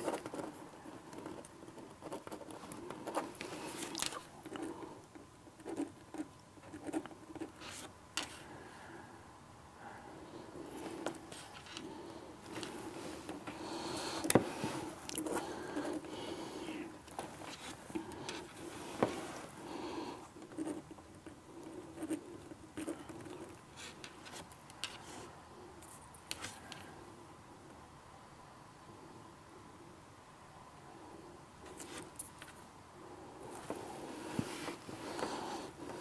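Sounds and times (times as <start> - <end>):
pens scratching on paper: 0.0 - 4.9, 5.6 - 8.4, 10.7 - 26.8.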